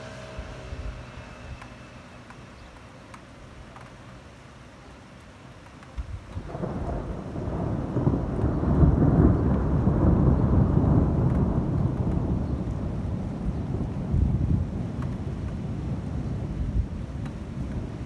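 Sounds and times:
thunder rumbling: 6.3 - 18.0.

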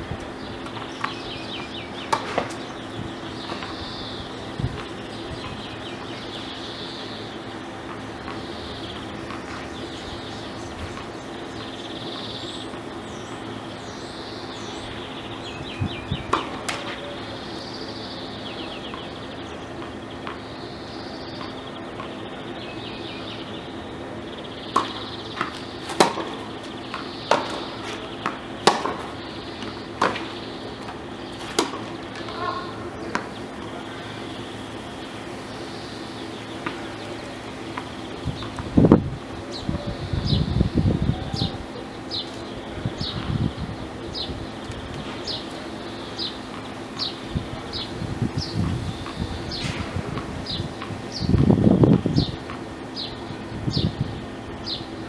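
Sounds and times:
bird singing: 0.0 - 55.0
steady low hum: 0.0 - 55.0
tennis balls struck by rackets: 0.1 - 13.9, 14.6 - 23.2, 24.6 - 39.7.

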